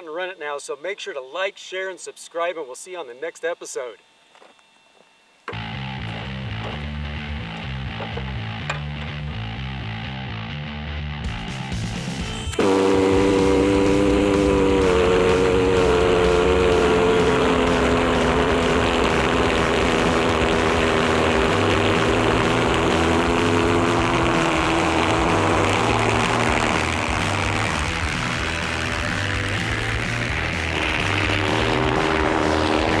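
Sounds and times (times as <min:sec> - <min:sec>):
pulsejet engine running: 0:11.7 - 0:33.0.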